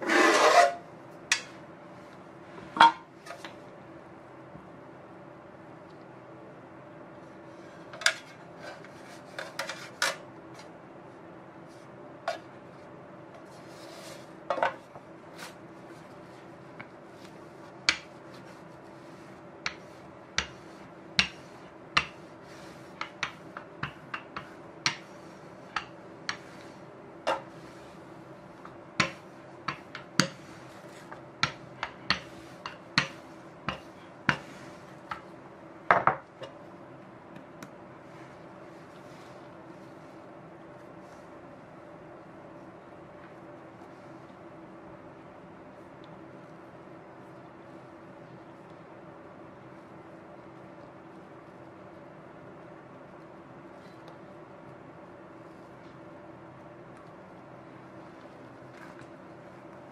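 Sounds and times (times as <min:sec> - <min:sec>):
rolling pin working dough: 0:00.0 - 0:02.2, 0:11.6 - 0:36.6
faint steady hum: 0:00.0 - 0:59.9.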